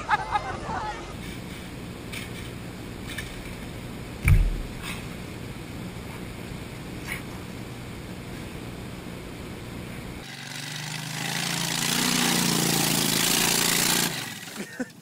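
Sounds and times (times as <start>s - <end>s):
golf cart humming: 10.2s - 15.0s.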